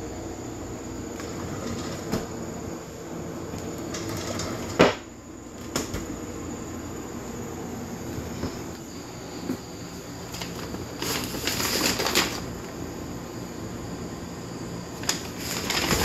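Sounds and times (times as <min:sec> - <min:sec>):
steady mechanical hum: 0:00.0 - 0:16.0
drawer being opened: 0:01.2 - 0:02.4, 0:15.4 - 0:16.0.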